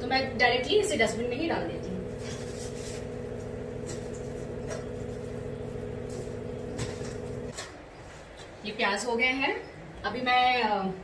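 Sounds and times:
machine hum with held tone: 0.0s - 7.5s
onion skins rustling: 2.1s - 5.4s.

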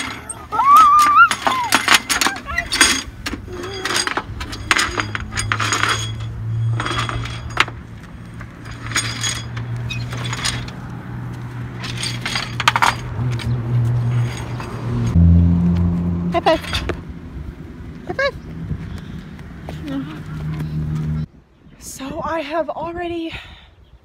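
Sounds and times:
metal slide rollers rattling: 0.0s - 10.9s, 11.7s - 15.2s.

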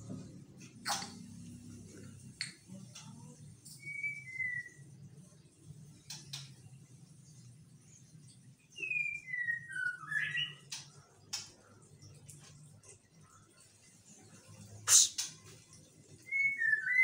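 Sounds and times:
faint low hum: 0.0s - 9.5s
bird singing whistled notes: 3.7s - 5.0s, 8.7s - 10.8s, 16.2s - 17.0s.

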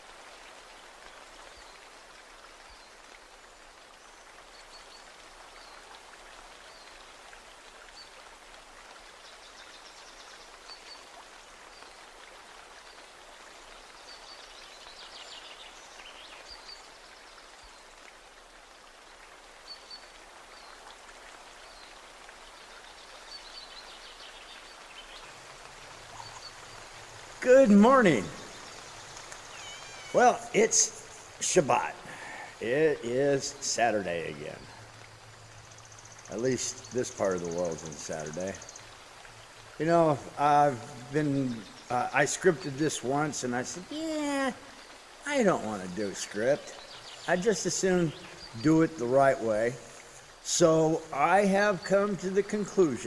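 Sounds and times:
steady hiss: 19.3s - 53.0s
high bird chirps: 26.1s - 26.8s, 28.2s - 30.2s.

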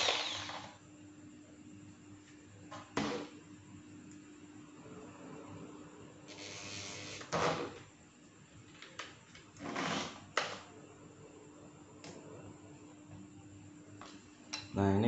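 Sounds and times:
drill scraping against plastic: 0.0s - 0.8s.

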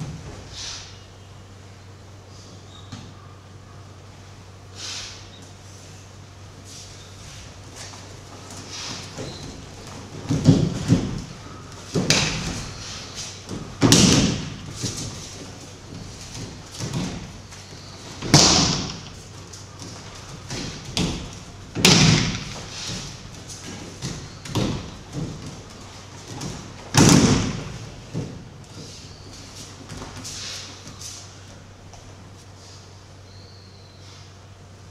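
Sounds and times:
soft knocks and footfalls: 7.3s - 31.1s
heavy thuds on a mat: 8.8s - 19.2s, 19.8s - 28.9s.

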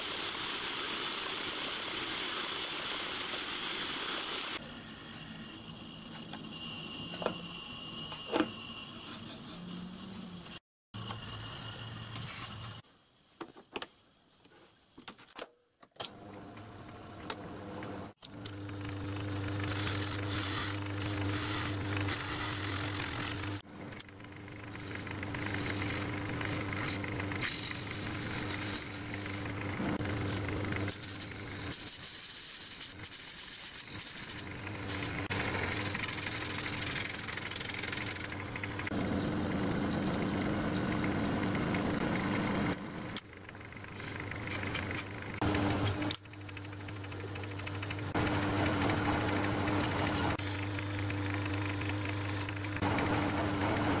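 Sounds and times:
lathe tool cutting hiss: 0.0s - 10.6s
metal lathe motor hum: 34.3s - 54.0s.

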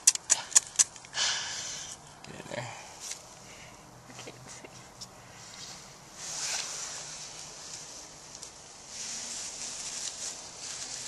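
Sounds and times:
tinder rustling in hands: 5.5s - 11.0s.

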